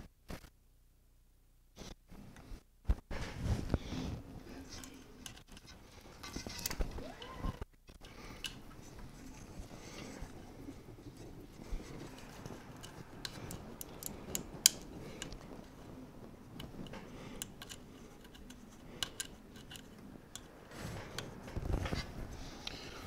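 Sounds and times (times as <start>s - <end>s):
rustle of wires and sleeving: 1.8s - 7.7s
plastic cable connectors clicking: 12.2s - 15.4s, 16.6s - 20.5s.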